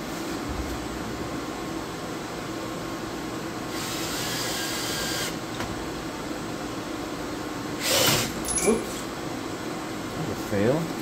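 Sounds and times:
machine shop hum: 0.0s - 11.0s
cordless drill whirring: 3.7s - 5.4s.

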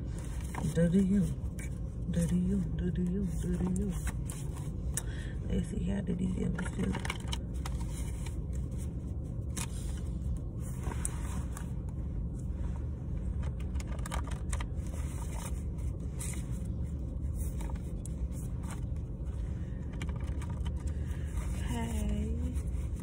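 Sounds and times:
low rumble inside car: 0.0s - 23.0s.

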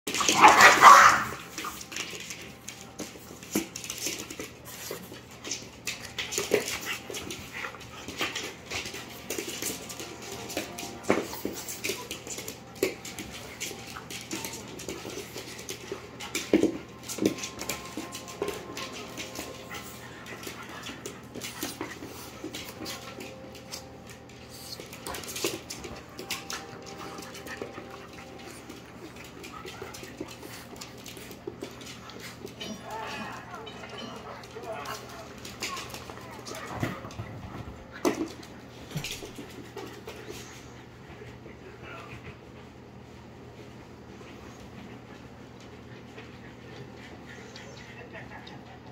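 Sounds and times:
dog noises: 0.1s - 1.9s
dog claws clicking on wood floor: 0.1s - 40.4s.

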